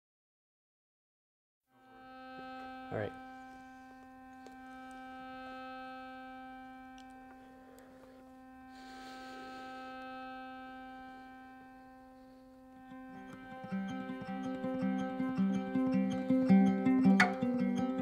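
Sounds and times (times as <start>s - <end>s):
faint steady hum: 1.8s - 18.0s.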